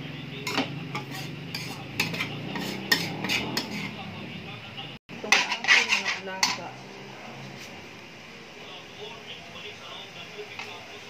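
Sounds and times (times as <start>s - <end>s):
metal spatula scraping a wok: 0.4s - 4.1s, 5.2s - 7.8s.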